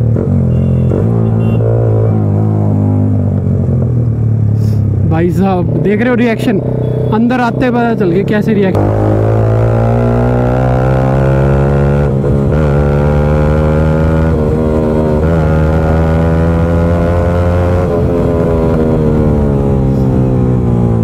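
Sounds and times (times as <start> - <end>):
motorcycle engine accelerating: 5.5 - 21.0.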